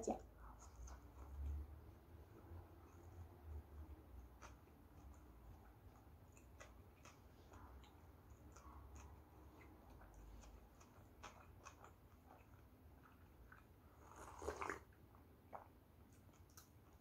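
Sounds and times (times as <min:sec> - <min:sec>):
chewing: 0:00.3 - 0:17.0
slurping soup: 0:13.9 - 0:15.0.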